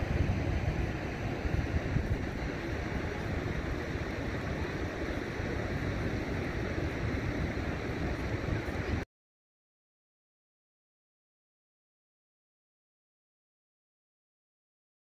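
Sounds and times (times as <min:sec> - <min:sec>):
water rushing over rocks: 0:00.0 - 0:09.0
wind buffeting microphone: 0:00.0 - 0:09.0.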